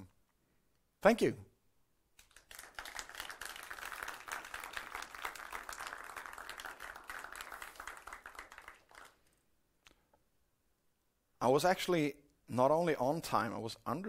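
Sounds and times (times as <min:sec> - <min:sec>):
audience applauding: 0:02.2 - 0:09.4.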